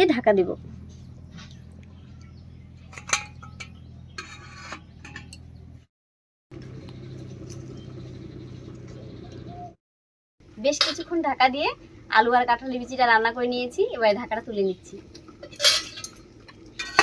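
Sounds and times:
metal cookware clinking: 2.8 - 5.5, 15.4 - 17.0
steady low hum: 6.6 - 9.8.

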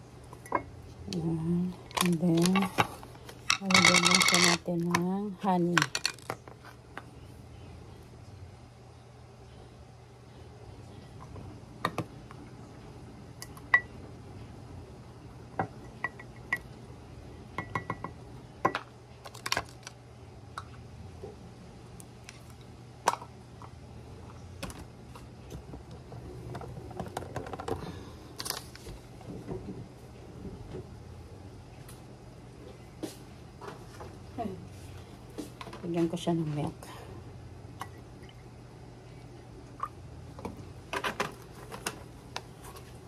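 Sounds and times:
steady low hum: 0.0 - 43.0
glass and wood clinking: 3.5 - 4.7
rustling and scraping: 41.0 - 43.0.

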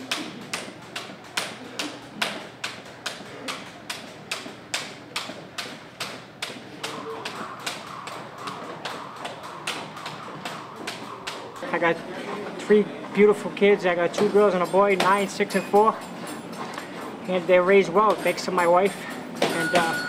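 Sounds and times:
jump rope slapping wooden floor: 0.0 - 12.0.

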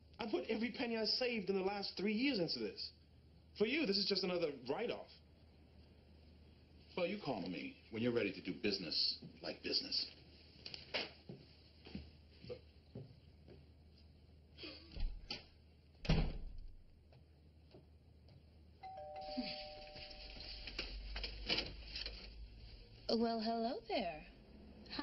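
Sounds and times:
two-note doorbell chime: 18.8 - 20.8.

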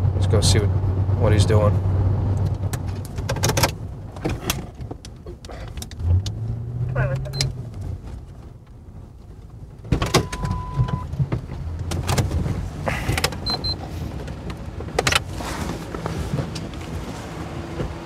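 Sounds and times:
low engine and road hum: 0.0 - 18.0
sharp clicks and knocks: 2.4 - 6.4, 9.8 - 13.6, 14.2 - 15.3
high double beep: 10.2 - 11.1.

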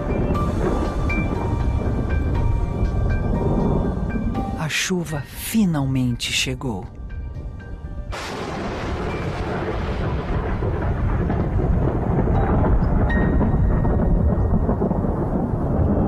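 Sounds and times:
thunder crack and rumble: 0.0 - 4.6, 8.0 - 16.0.

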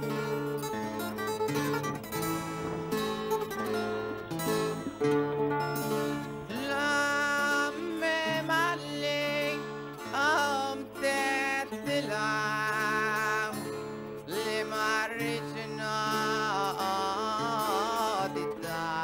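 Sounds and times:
strummed acoustic guitar: 0.0 - 19.0
walking bass line: 0.0 - 19.0
person singing with vibrato: 6.4 - 19.0.

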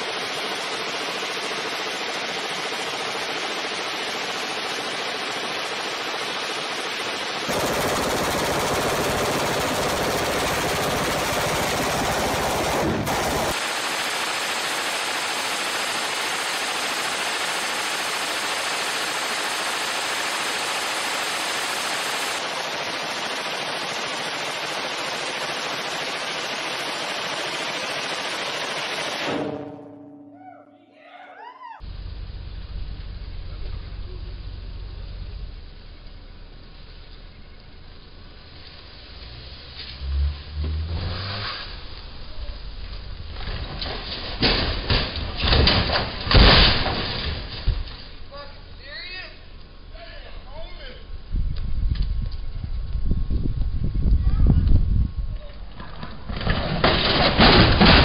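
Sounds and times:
machine gun firing: 0.0 - 29.9.

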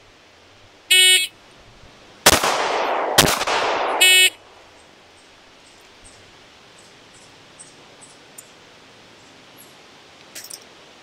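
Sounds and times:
pistol shots with ringing echo: 2.3 - 4.6.

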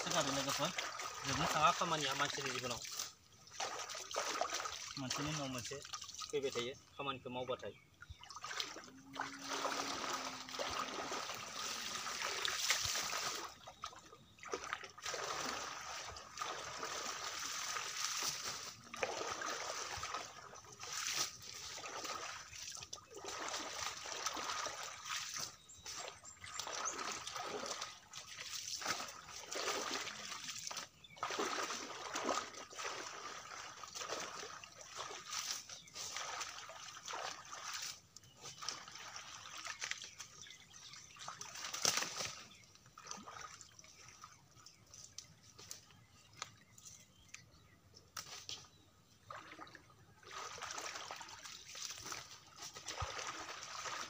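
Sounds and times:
water splashing and sloshing: 0.0 - 54.0.

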